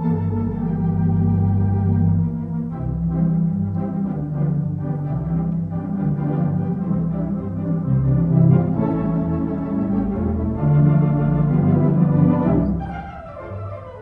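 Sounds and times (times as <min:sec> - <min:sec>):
organ music: 0:00.0 - 0:14.0.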